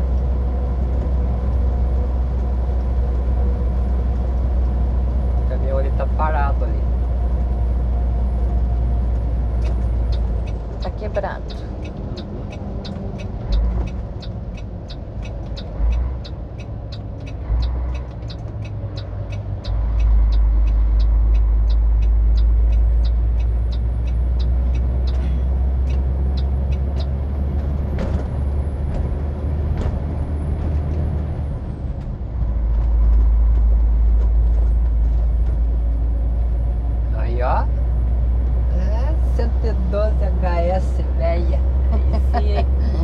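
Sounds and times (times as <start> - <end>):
diesel truck engine drone: 0.0 - 43.0
rapid regular ticking: 9.6 - 25.2.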